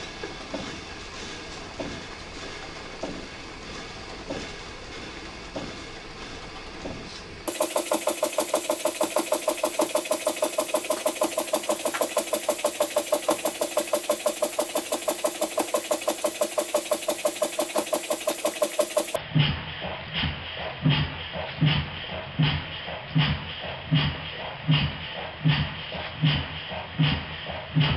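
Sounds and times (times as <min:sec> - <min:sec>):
model steam engine running quietly: 0:00.0 - 0:19.2
toy steam engine exhaust puffs: 0:07.5 - 0:19.2.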